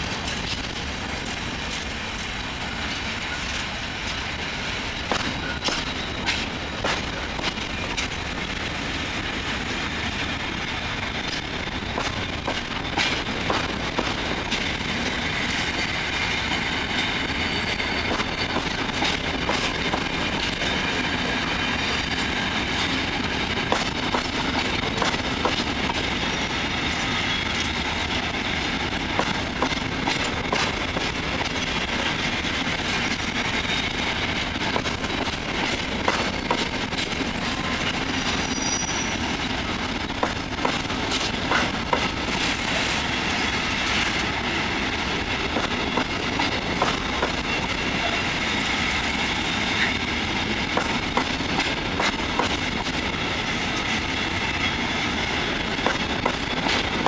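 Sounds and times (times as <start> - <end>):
freight train rolling past: 0.0 - 57.0
high wheel squeal: 5.3 - 6.5, 38.0 - 39.3
wheels clicking over rail joints: 10.2 - 15.8, 22.1 - 43.0, 43.8 - 48.2, 49.7 - 54.4, 55.5 - 57.0.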